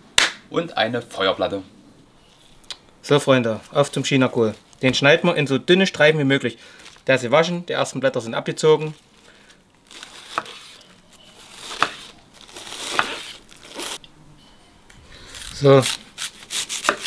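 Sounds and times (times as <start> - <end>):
knife cutting cabbage on board: 10.0 - 10.8, 11.5 - 14.0, 15.8 - 17.0.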